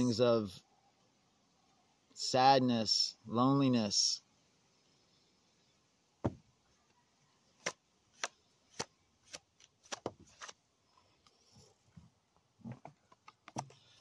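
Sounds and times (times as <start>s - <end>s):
cards being shuffled: 7.6s - 10.6s.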